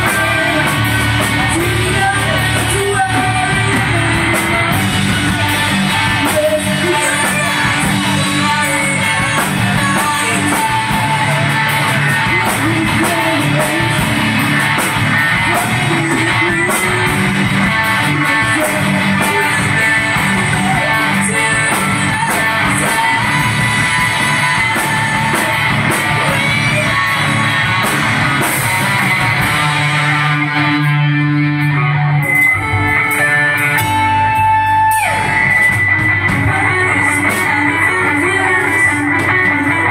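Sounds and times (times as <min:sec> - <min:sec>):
drum kit: 0:00.0 - 0:39.9
electric bass: 0:00.0 - 0:39.9
electric guitars: 0:00.0 - 0:39.9.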